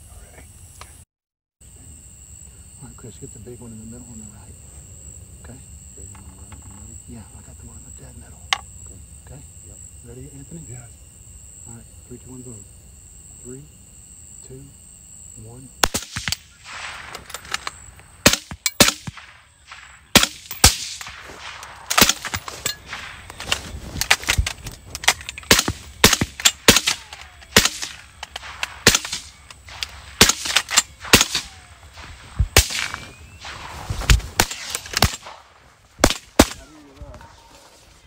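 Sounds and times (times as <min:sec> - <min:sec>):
rifle gunshots: 0:15.8 - 0:36.7.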